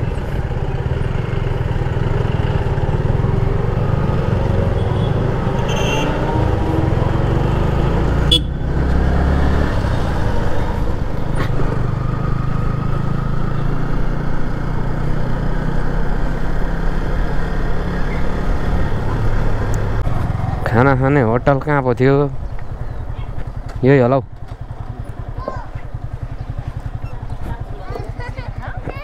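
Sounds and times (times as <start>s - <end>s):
motorcycle engine running: 0.0s - 29.0s
horn toot: 4.8s - 6.7s, 8.2s - 8.7s.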